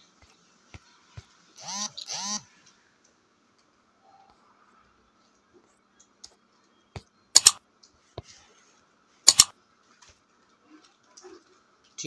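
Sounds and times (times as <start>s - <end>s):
mouse click sound effect: 7.4s - 7.6s, 9.3s - 9.5s.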